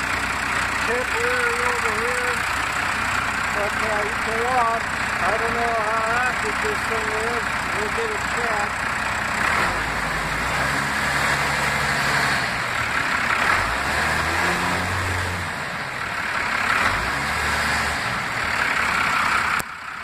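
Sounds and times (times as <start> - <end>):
diesel engine running at raised revs: 0.0 - 20.0.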